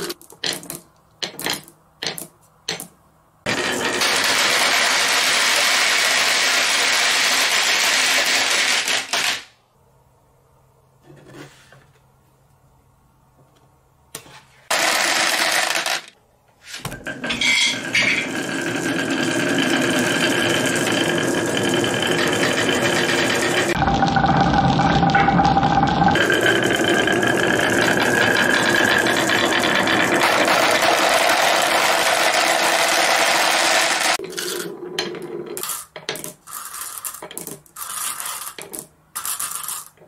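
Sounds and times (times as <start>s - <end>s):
glass marbles rattling on wood: 35.6s - 40.0s.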